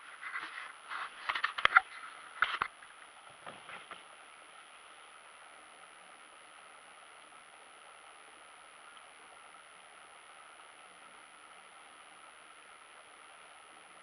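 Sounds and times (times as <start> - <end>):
faint steady hiss: 0.0 - 14.0
camera handling noise: 1.2 - 2.8.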